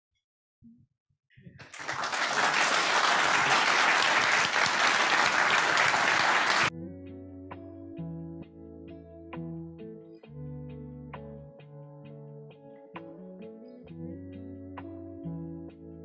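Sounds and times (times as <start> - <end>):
audience applauding: 1.6 - 6.7
instrumental music: 6.7 - 16.0.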